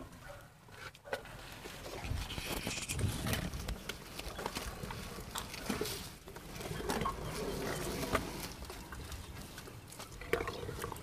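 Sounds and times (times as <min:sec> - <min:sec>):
elephants moving: 0:01.5 - 0:11.0.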